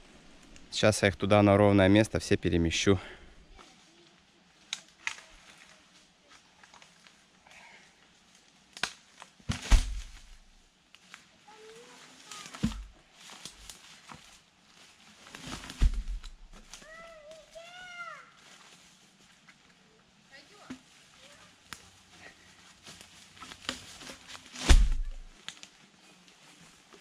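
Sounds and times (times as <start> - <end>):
heavy thuds of log sections dropped: 9.5 - 10.4, 15.6 - 16.7, 24.5 - 25.3.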